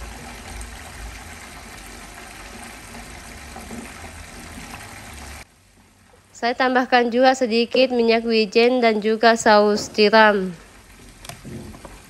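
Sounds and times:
sauce simmering in a pot: 0.0 - 6.4, 10.6 - 12.0.

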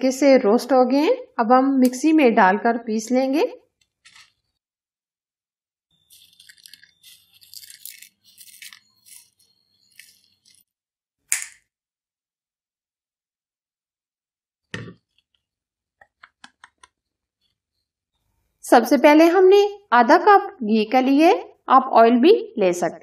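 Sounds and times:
spices rattling into metal cup: 6.0 - 10.6.

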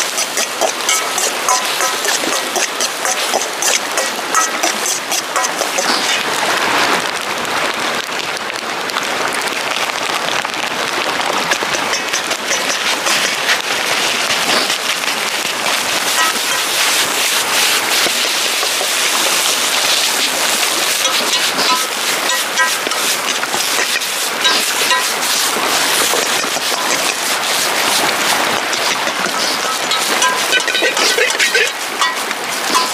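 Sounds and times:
ladle scraping and tapping pan: 0.0 - 6.3, 11.5 - 13.8, 15.9 - 32.9
food sizzling in a wok: 0.0 - 7.0, 11.2 - 32.9.

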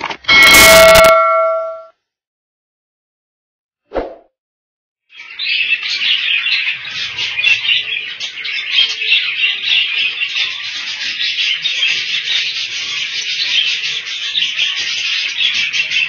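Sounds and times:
budgerigars chirping and chattering: 5.1 - 16.0.

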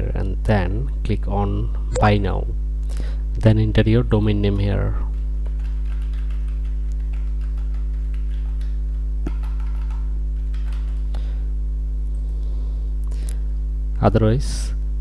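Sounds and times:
electrical mains hum: 0.0 - 15.0
computer keyboard clicks: 5.4 - 11.1.

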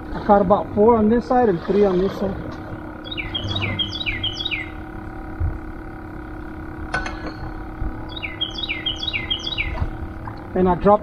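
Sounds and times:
faint steady hum: 0.0 - 11.0
songbird whistling notes: 3.0 - 4.9, 8.1 - 9.9.

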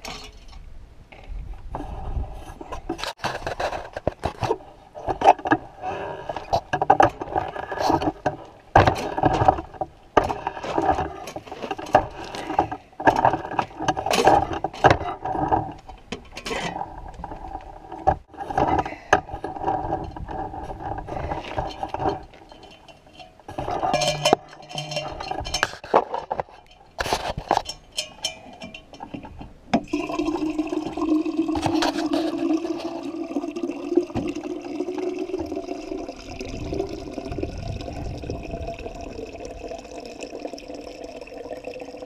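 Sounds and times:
clicks and rattles: 6.2 - 30.0.

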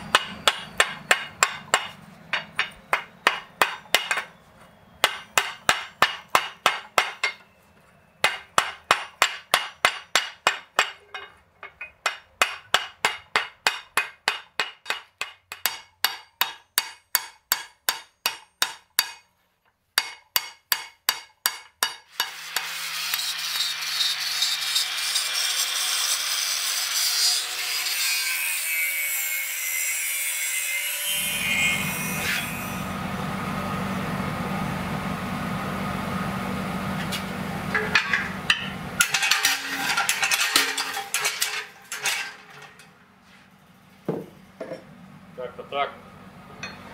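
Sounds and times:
hammer striking hot metal on anvil: 0.0 - 4.3, 5.0 - 7.5, 8.2 - 19.3, 20.0 - 22.7, 37.7 - 42.6, 46.6 - 46.9.

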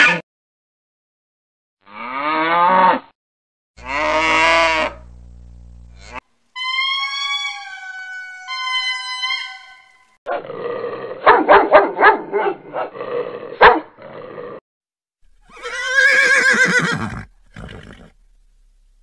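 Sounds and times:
lemur wailing: 6.0 - 9.9, 15.4 - 18.2
dog howling and barking: 11.2 - 12.9
pony whinnying: 15.4 - 18.2.

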